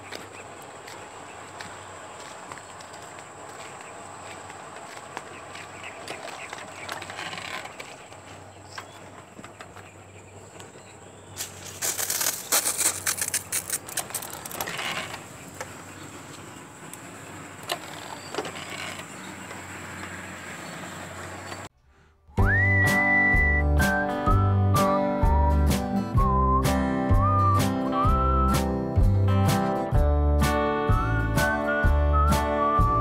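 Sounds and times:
footsteps on dry straw: 0:00.0 - 0:08.4, 0:11.3 - 0:14.4
sprayer pump clicking and rattling: 0:11.4 - 0:20.2.

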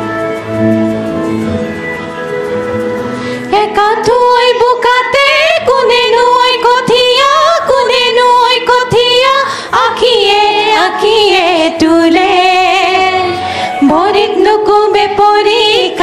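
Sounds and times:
women singing together: 0:03.5 - 0:16.0.

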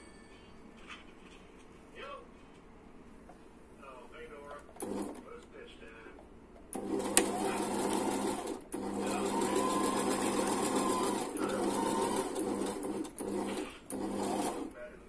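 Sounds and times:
sewing machine stitching: 0:04.8 - 0:05.5, 0:06.7 - 0:14.9.

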